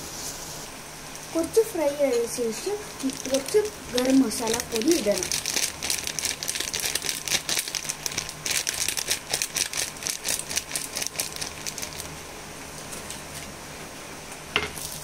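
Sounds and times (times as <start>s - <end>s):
faint steady hiss: 0.0s - 5.4s
plastic packet crinkling: 2.9s - 12.2s.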